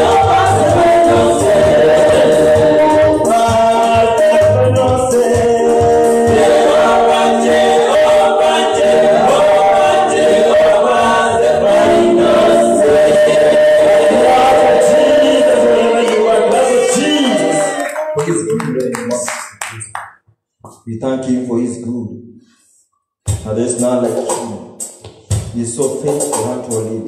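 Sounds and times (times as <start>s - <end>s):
women backing singers: 0.0s - 4.6s, 5.4s - 18.2s
man singing lead: 0.0s - 18.1s
keyboard and band accompaniment: 0.0s - 19.6s.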